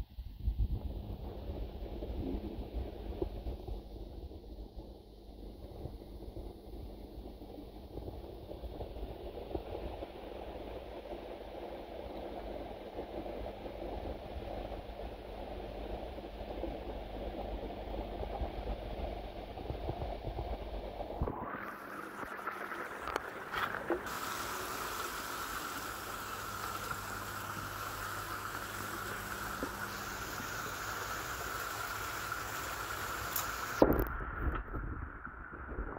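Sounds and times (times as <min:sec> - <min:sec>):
muffled underwater rumble: 0:00.0 - 0:31.6, 0:33.6 - 0:35.9
pond water bubbling and trickling: 0:13.4 - 0:35.9.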